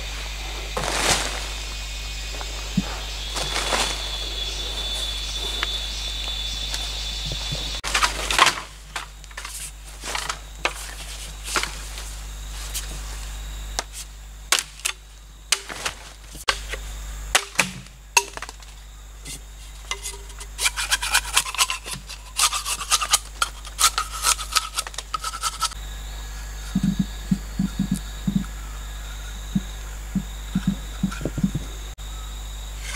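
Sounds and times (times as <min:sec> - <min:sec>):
machete scraping bamboo: 0:13.8 - 0:25.8.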